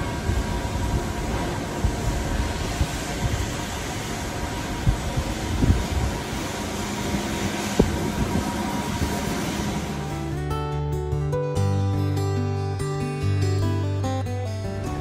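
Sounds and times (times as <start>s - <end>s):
wind buffeting microphone: 0.0s - 10.4s.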